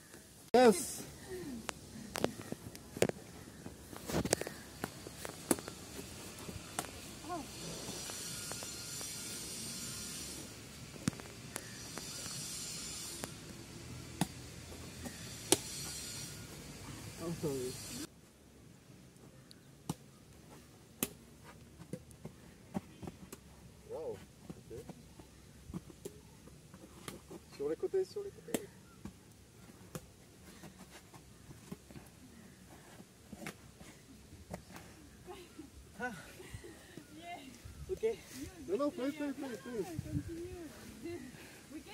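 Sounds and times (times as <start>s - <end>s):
steady hiss: 3.7s - 18.1s
rackets striking shuttlecock: 15.1s - 15.7s.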